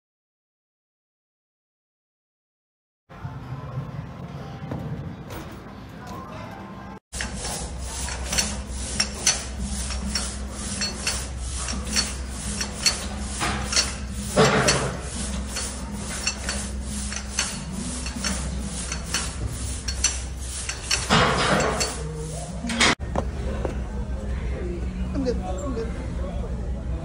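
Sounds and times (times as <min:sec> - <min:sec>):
metallic clicking of gym equipment: 0:08.0 - 0:22.1.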